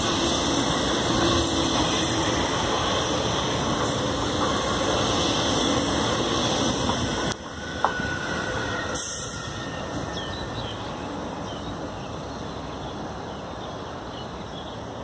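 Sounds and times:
train passing rumble: 0.0 - 15.0.

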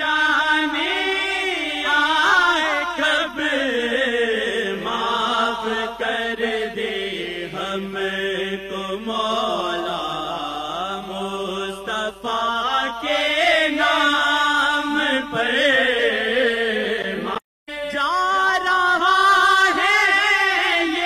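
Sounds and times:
person singing devotional chant: 0.0 - 21.0.

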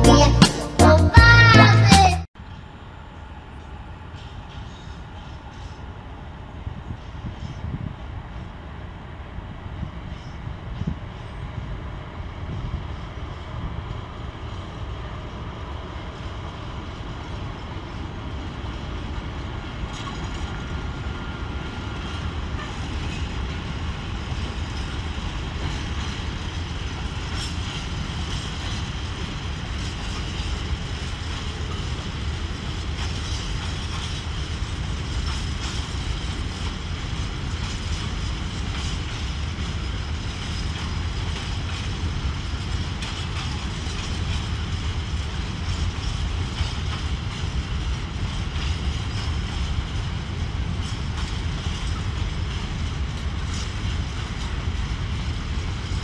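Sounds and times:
diesel locomotive engine hum: 0.0 - 56.0
wagon wheels clattering over track: 24.3 - 56.0.

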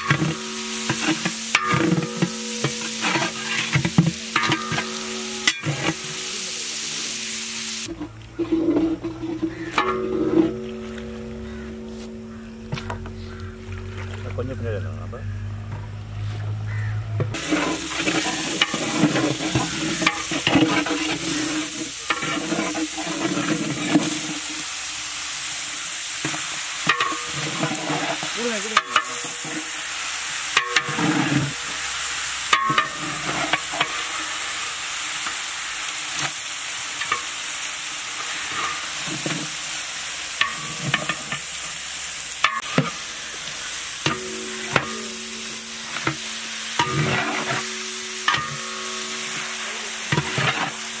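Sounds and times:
chicken sizzling in hot oil: 0.0 - 8.0, 16.0 - 51.0
metal ladle scraping pot: 0.0 - 14.5, 17.3 - 24.8, 26.2 - 29.9, 30.6 - 31.8, 32.4 - 34.4, 38.2 - 39.6, 40.4 - 41.6, 42.4 - 51.0.

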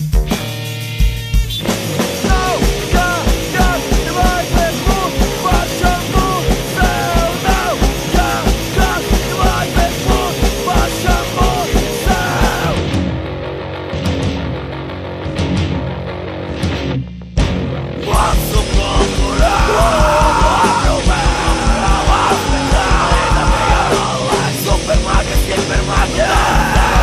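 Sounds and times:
fast drums: 0.0 - 13.2, 16.7 - 27.0
bass guitar: 0.0 - 27.0
distorted guitar: 0.0 - 27.0
punk vocals: 1.4 - 13.0, 17.9 - 27.0.

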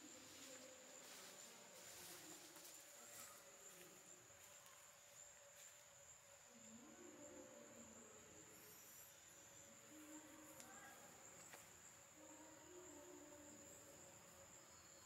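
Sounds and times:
high-pitched insect drone: 6.6 - 11.6.

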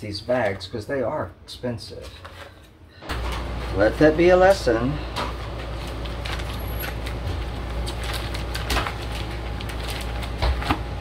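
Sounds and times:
steady low hum: 0.0 - 11.0
plastic bag crinkling: 5.7 - 11.0.

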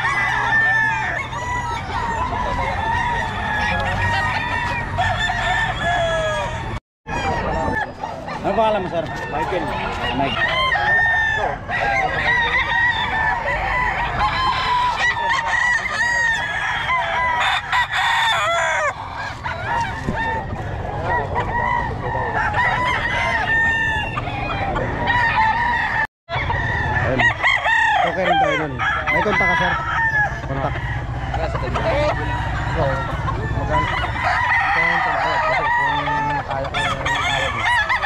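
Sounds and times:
chickens clucking: 0.0 - 38.0
roosters crowing: 0.0 - 38.0.

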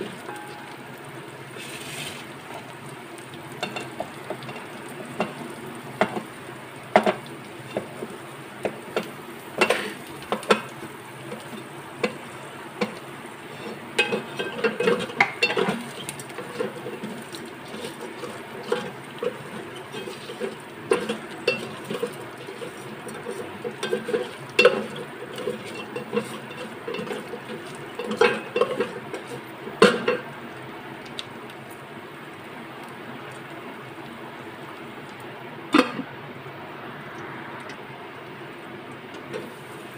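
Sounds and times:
oil sizzling: 0.0 - 39.9
wooden spatula scraping metal: 1.6 - 2.7, 12.8 - 30.0.

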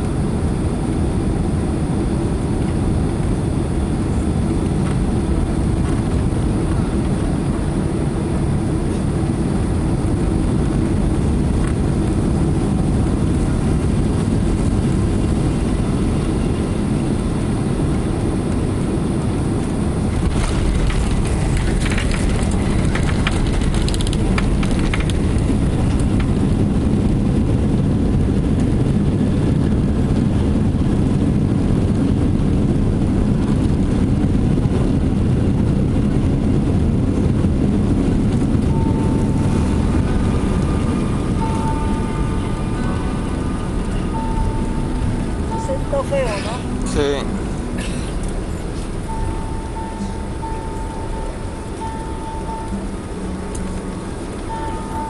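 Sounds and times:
airplane cabin engine rumble: 0.0 - 55.0
runway rollout rumble: 0.0 - 55.0
rattling and clatter: 19.6 - 27.1.

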